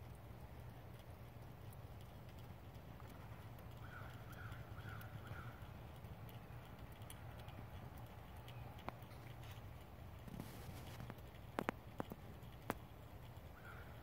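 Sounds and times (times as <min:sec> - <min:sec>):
faint ticks and taps: 0:00.0 - 0:14.0
steady low hum: 0:00.0 - 0:14.0
bird calls: 0:03.7 - 0:05.7, 0:13.5 - 0:14.0.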